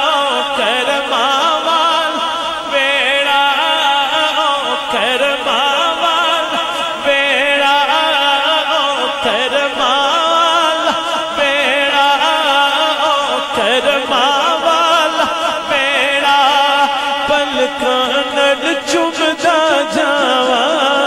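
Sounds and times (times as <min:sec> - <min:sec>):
man singing devotional song: 0:00.0 - 0:21.0.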